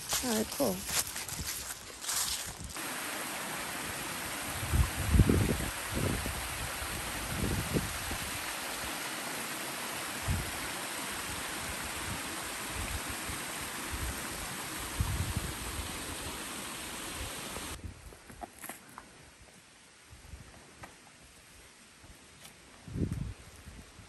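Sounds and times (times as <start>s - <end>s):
waterfall rushing: 2.8s - 17.8s.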